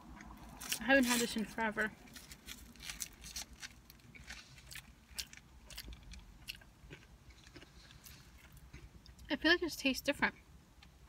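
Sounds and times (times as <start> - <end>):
person chewing food: 2.1 - 9.3.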